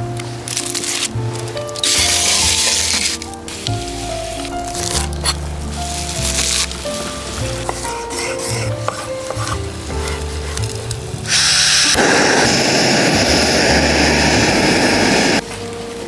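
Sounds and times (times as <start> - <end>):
background music: 0.0 - 16.0
knife tapping cutting board: 7.6 - 10.3
gas valve hiss: 11.2 - 15.4
burner roar: 11.5 - 15.4.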